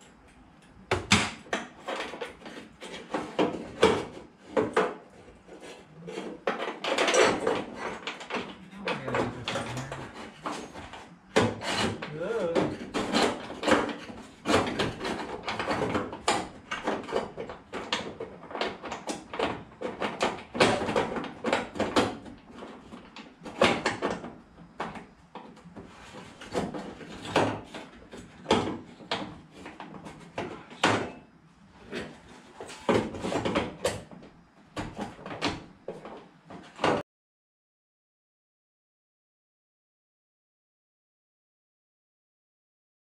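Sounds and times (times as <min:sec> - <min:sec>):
tool scraping sheet metal: 0:01.8 - 0:17.8.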